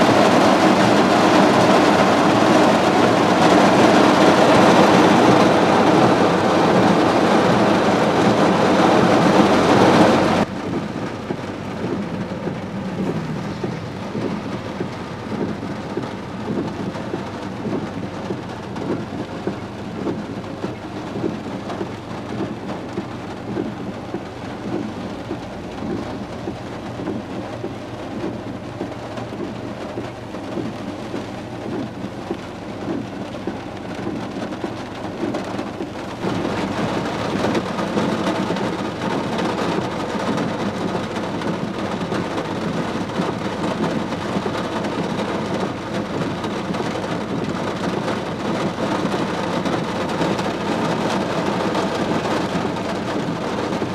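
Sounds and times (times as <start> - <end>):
heavy rain on car roof: 0.0 - 53.9
low steady hum: 9.4 - 34.5.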